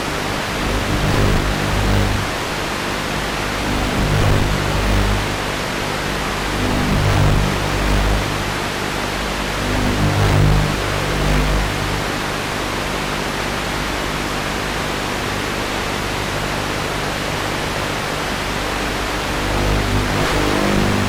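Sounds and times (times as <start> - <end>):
static hiss: 0.0 - 13.7, 18.3 - 21.0.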